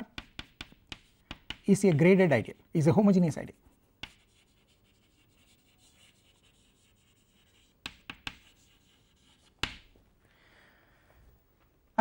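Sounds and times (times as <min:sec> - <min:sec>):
chalk scratching on blackboard: 0:00.2 - 0:02.6, 0:03.5 - 0:09.9.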